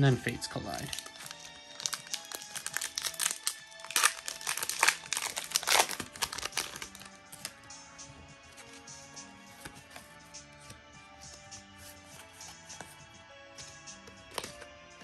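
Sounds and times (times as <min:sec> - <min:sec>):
quiet background music: 0:00.0 - 0:15.0
foil wrapper crinkling: 0:00.8 - 0:07.1.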